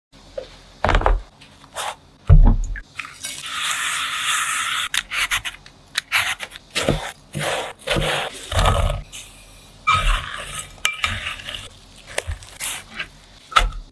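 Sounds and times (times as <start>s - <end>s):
peeler scraping fruit skin: 9.9s - 13.8s.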